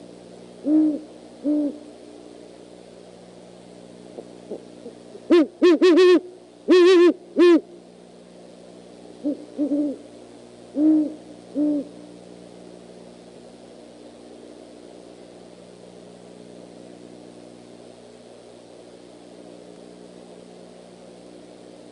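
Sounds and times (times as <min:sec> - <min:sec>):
owl hooting: 0:00.6 - 0:01.9, 0:04.2 - 0:07.8, 0:09.2 - 0:10.1, 0:10.7 - 0:12.1.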